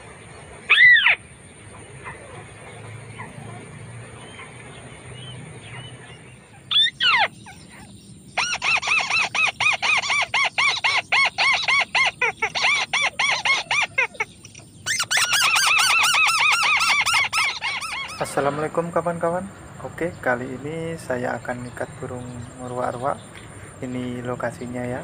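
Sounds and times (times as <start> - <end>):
waterhen calling: 0.0 - 19.0.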